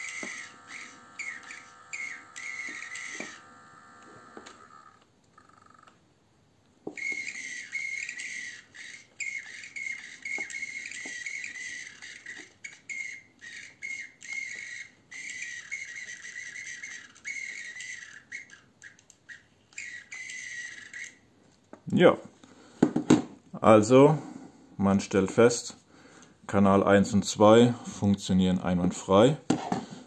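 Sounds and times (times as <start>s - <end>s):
servos whining: 0.0s - 6.0s, 6.8s - 21.3s.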